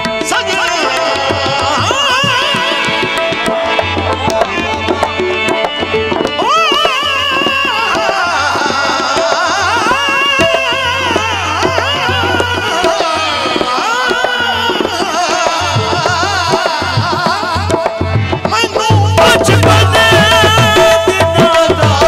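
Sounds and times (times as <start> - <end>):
harmonium tones: 0.0 - 22.0
man singing: 0.0 - 22.0.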